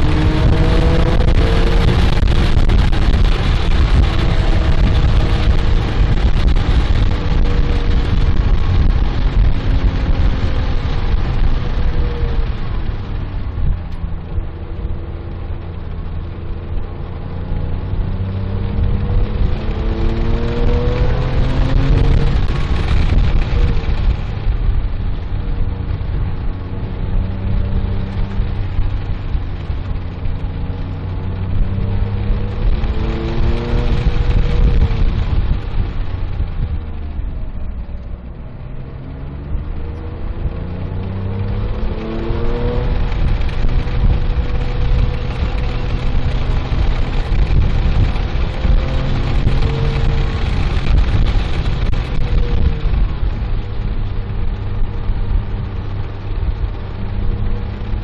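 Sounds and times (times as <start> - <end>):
car engine revving: 0.0 - 58.0
road and wind noise: 0.0 - 58.0.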